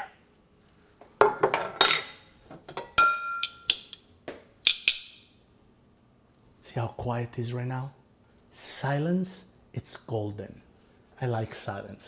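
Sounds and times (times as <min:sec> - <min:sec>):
metal cookware clinking and scraping: 0:01.2 - 0:03.9.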